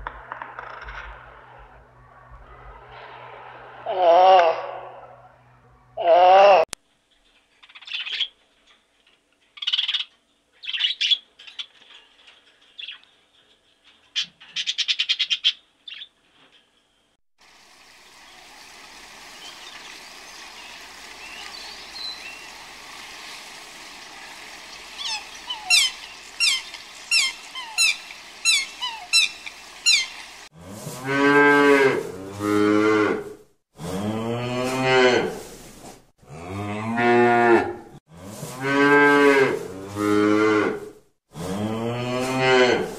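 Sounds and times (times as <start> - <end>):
steady hiss: 17.4 - 30.5
short high bird calls: 24.7 - 30.4
cattle mooing: 30.6 - 35.4, 36.3 - 42.9.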